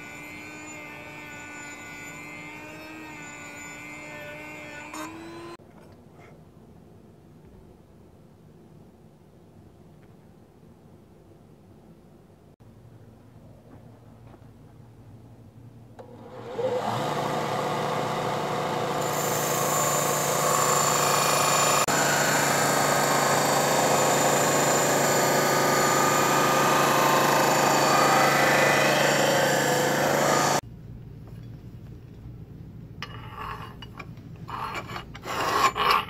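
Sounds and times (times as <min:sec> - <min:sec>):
belt grinder motor humming: 0:00.0 - 0:05.6, 0:16.1 - 0:30.6
steel grinding on sanding belt: 0:00.0 - 0:05.6, 0:18.9 - 0:30.6.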